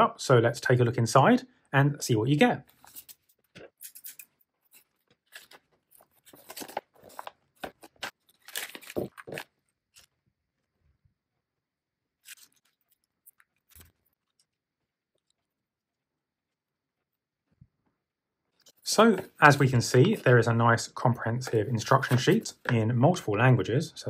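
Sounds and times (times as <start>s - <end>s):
plastic bag crinkling and rustling: 4.7s - 10.1s.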